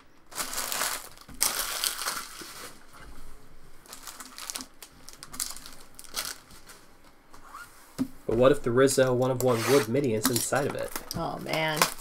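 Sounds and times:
foil wrapper crinkling: 0.3 - 2.9, 3.8 - 6.8, 9.4 - 12.0.

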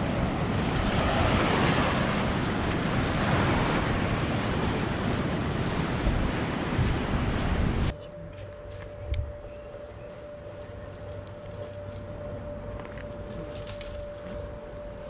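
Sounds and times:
surf waves washing on sand: 0.0 - 7.9
wind rumbling on microphone: 0.0 - 8.0.

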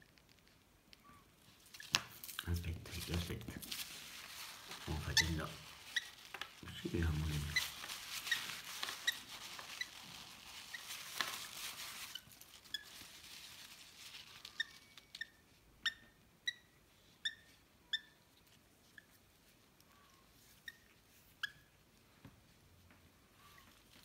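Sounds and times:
paper towel rustling: 1.5 - 15.0.

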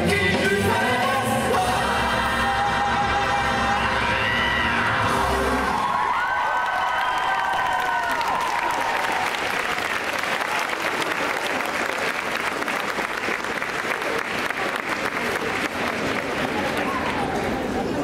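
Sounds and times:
large crowd applauding: 4.1 - 18.0.

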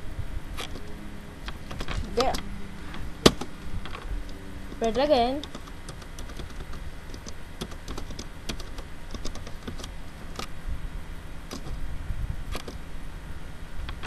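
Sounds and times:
low steady hum: 0.0 - 14.0
keyboard and mouse clicking: 3.3 - 10.5, 11.5 - 11.8, 12.5 - 12.8.

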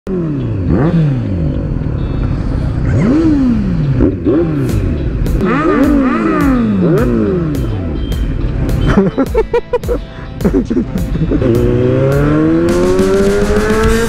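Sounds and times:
motorcycle engines revving: 0.1 - 9.3, 10.2 - 14.0
music with steady beat: 3.7 - 14.0.

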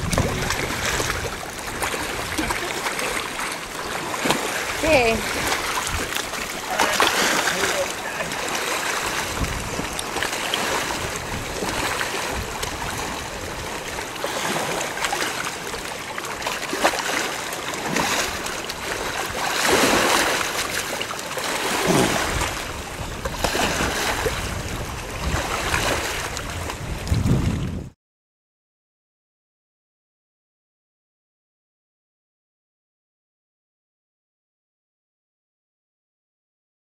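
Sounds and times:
river water rushing: 0.0 - 27.0
splashing in water: 0.0 - 27.4.

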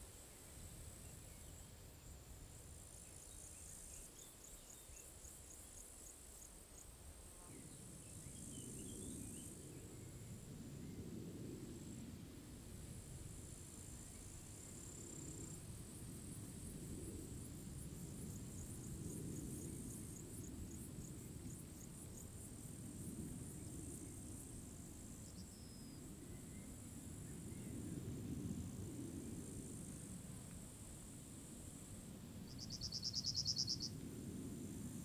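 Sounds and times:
crickets trilling: 0.1 - 12.1, 12.8 - 35.0.

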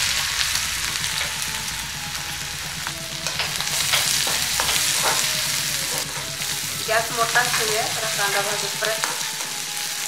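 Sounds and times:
onions sizzling in hot oil: 0.0 - 10.0
spatula scraping a pan: 3.1 - 10.0.

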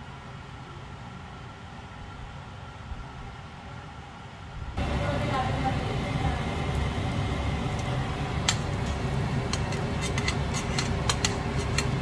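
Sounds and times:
steady low hum: 0.0 - 12.0
butter sizzling in a frying pan: 4.8 - 12.0
metal tongs clicking in pan: 7.7 - 12.0.

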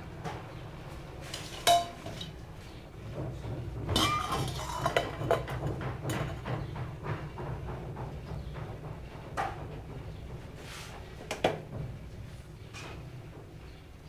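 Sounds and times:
steel kitchenware clinking: 1.2 - 2.4, 4.0 - 6.4.

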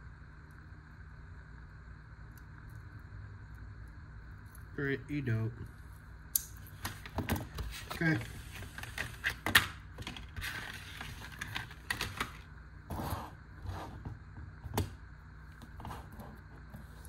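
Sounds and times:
plastic packaging rustling: 7.0 - 12.5.

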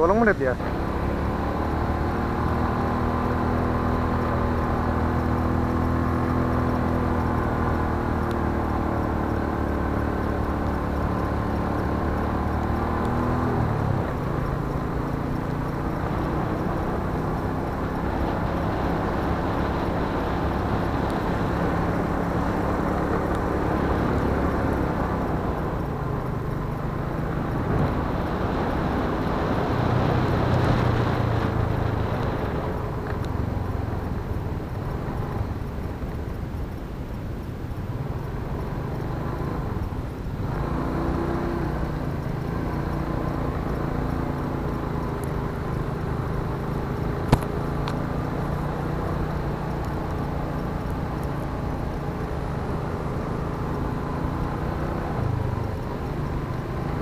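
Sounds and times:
vehicle engine humming: 0.0 - 57.0.

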